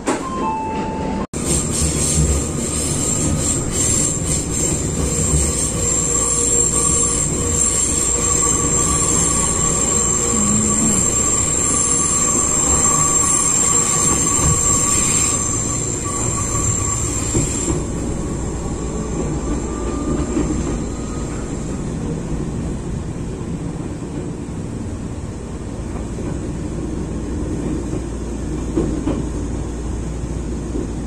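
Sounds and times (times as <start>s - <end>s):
train wheels rumbling on rail: 0.0s - 31.0s
thin high whine: 5.8s - 17.8s.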